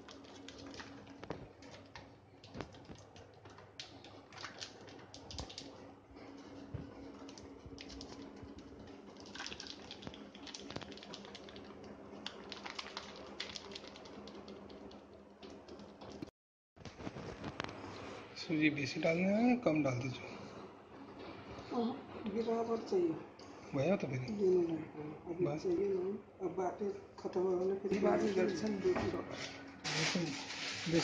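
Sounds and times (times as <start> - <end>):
plastic packet crinkling: 0.0 - 5.7, 7.2 - 15.0
flour pouring into steel pot: 29.9 - 31.0.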